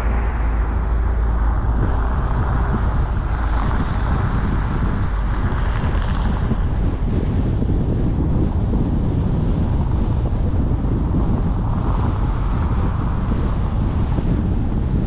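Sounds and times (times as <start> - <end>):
rush of higher noise: 0.0 - 6.7
car driving rumble: 0.0 - 15.0
wind buffeting microphone: 0.0 - 15.0.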